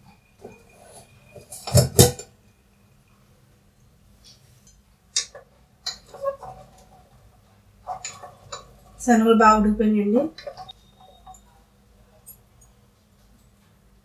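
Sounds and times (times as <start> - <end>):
wooden spatula scraping pot: 5.2 - 9.4, 10.2 - 11.4.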